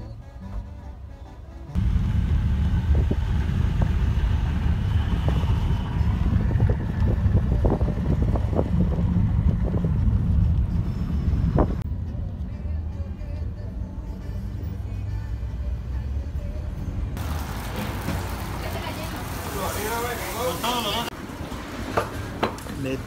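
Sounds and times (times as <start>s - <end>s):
car road rumble: 1.4s - 23.0s
wind buffeting microphone: 1.8s - 11.8s.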